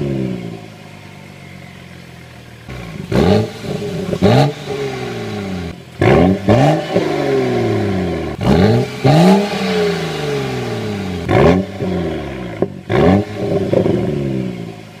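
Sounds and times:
car engine revving: 0.0s - 15.0s.

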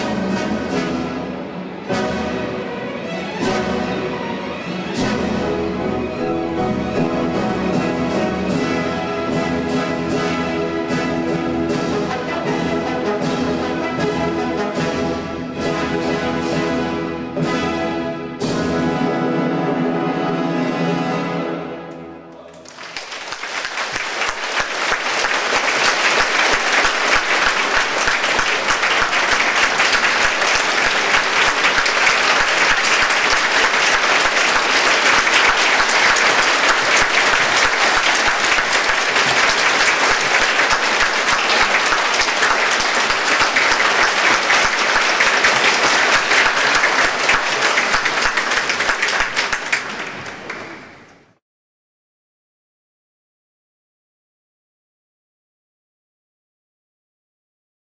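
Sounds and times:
audience applauding: 22.4s - 51.1s.

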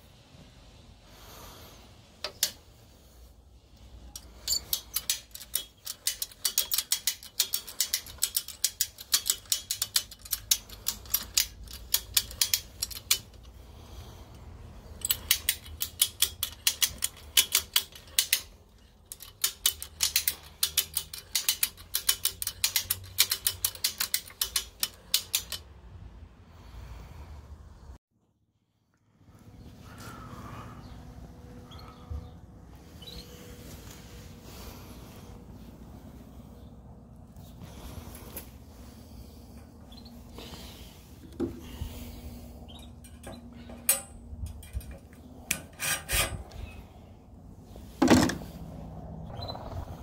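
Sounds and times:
ratchet pawl clicking: 4.2s - 13.6s, 14.9s - 25.7s.

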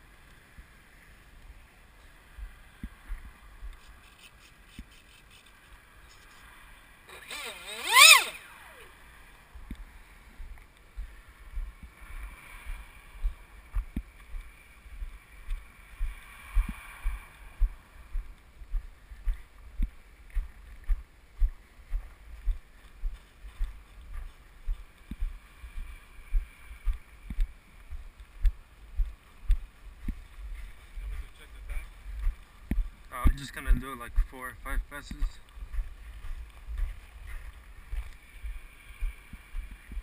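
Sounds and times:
faint wind hiss: 0.0s - 40.0s
footsteps dull thumps: 12.7s - 40.0s.

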